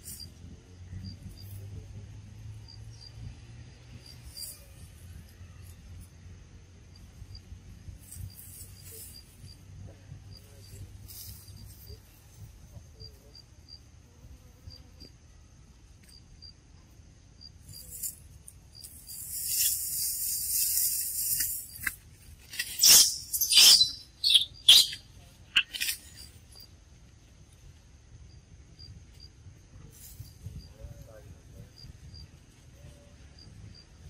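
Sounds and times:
faint high insect whine: 0.0s - 34.0s
loud hissing insect buzz: 18.8s - 22.0s
sharp high chirping calls: 22.5s - 26.4s.

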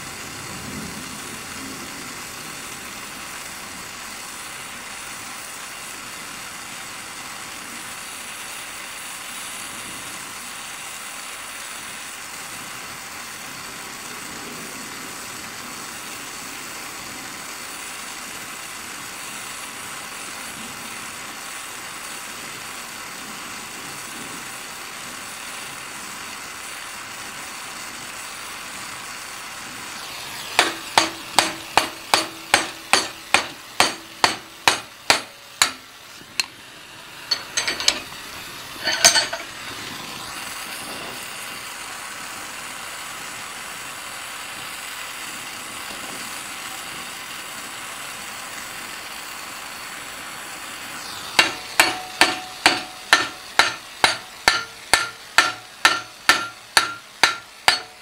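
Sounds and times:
torch flame hissing: 0.0s - 58.0s
ringing hammer blows on metal: 30.4s - 36.5s, 37.2s - 38.2s, 38.8s - 39.5s, 51.3s - 58.0s.

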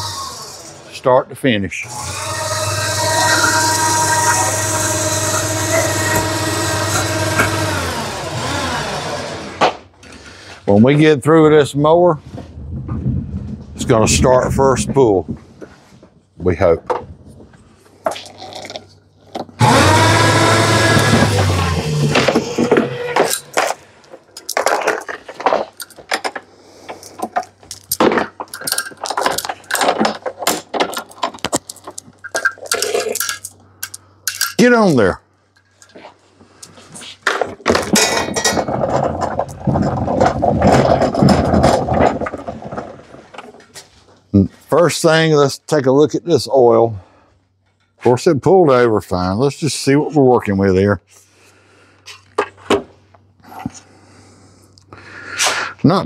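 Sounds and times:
electric hoist motor humming: 0.0s - 1.0s, 1.8s - 9.6s, 19.6s - 23.8s.

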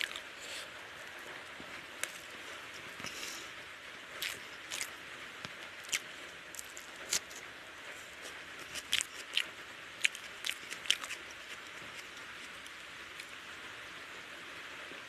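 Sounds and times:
wet eating smacks and clicks: 0.0s - 0.3s, 4.2s - 7.4s, 8.6s - 13.3s
faint hiss: 0.0s - 8.6s.

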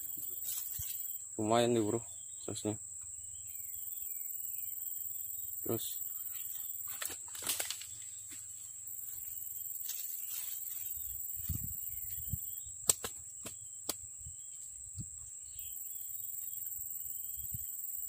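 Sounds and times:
faint chirps: 0.0s - 18.0s
insects droning: 0.0s - 18.0s
sharp clicks: 12.8s - 14.0s.

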